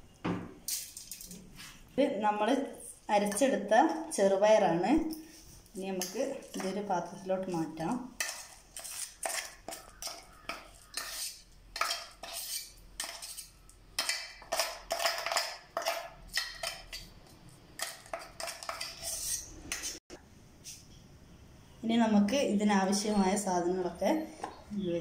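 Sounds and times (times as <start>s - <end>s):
metal spoon scraping steel jar: 8.2s - 17.2s, 17.8s - 20.0s.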